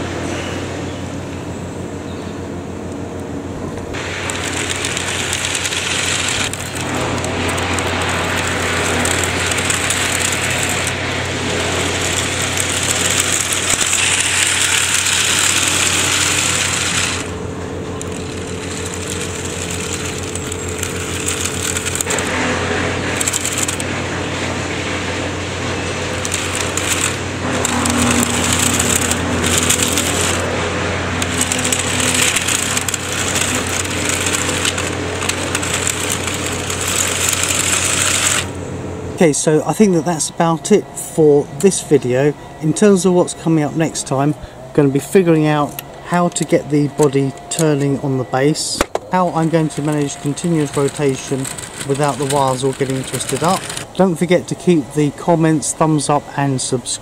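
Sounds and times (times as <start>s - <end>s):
toy motor whine: 3.9s - 38.6s, 41.6s - 57.0s
plastic tracks clattering on concrete: 11.6s - 17.4s, 26.1s - 30.5s, 31.2s - 38.5s.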